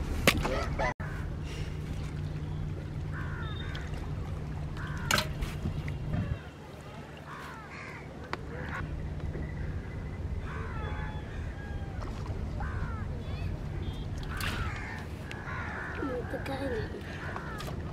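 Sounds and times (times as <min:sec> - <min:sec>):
low steady hum: 0:00.0 - 0:17.9
crows cawing: 0:04.8 - 0:05.2, 0:07.3 - 0:08.8, 0:12.6 - 0:13.1, 0:14.3 - 0:17.7.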